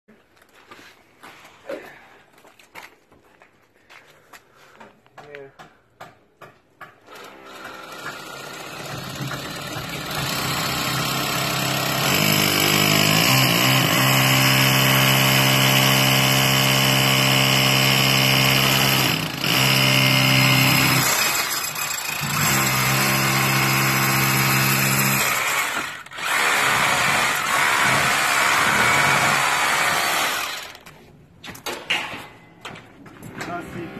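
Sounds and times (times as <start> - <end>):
hammer drill boring through brick: 7.1 - 30.9.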